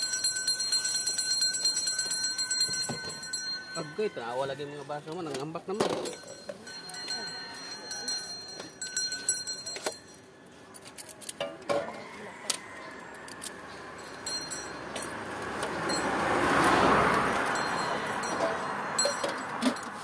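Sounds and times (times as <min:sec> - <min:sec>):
metal clinks and jangles: 0:00.0 - 0:04.2, 0:05.9 - 0:11.4, 0:13.4 - 0:15.2, 0:15.8 - 0:20.0.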